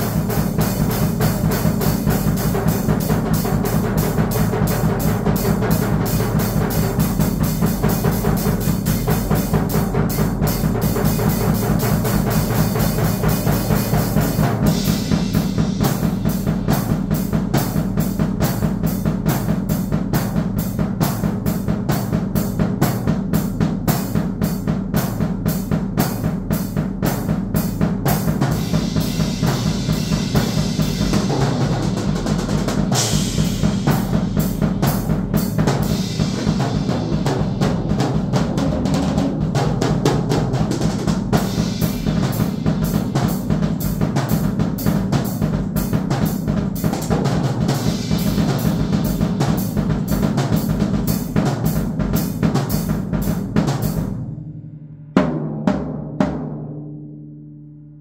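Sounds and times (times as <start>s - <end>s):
cymbals washing: 0.0s - 18.6s, 27.7s - 51.8s
loud cymbal crash: 0.0s - 20.5s, 27.2s - 38.6s, 40.5s - 46.6s, 47.6s - 55.6s
bass drum and snare strokes: 0.0s - 54.5s.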